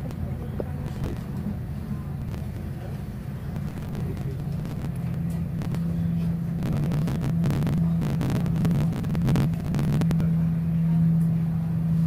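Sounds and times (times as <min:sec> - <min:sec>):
train carriage hum: 0:00.0 - 0:12.0.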